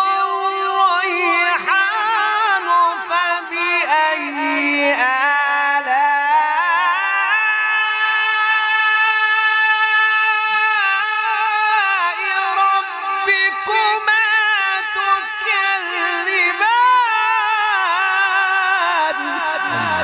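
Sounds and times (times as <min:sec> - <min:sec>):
person chanting melodic recitation: 0:00.0 - 0:20.0.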